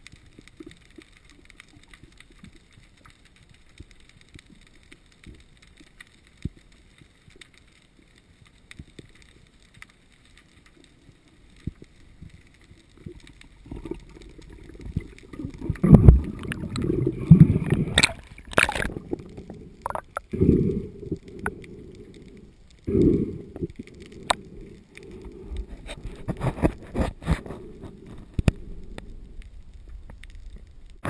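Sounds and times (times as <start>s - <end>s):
muffled underwater gurgling: 12.9s - 29.8s.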